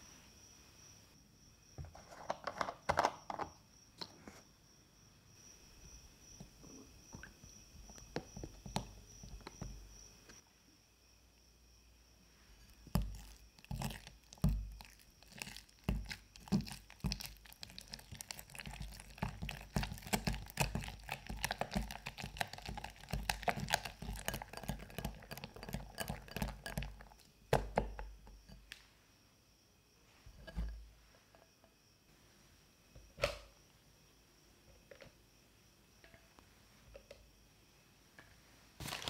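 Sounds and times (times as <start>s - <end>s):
whisk scraping glass bowl: 15.3s - 27.2s.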